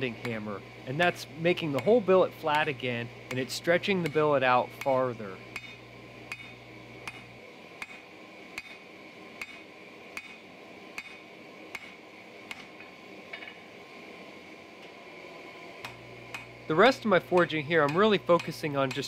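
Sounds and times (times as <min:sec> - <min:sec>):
hammer striking steel on anvil: 0:01.7 - 0:02.7, 0:03.3 - 0:13.7, 0:15.8 - 0:16.5, 0:17.2 - 0:19.0.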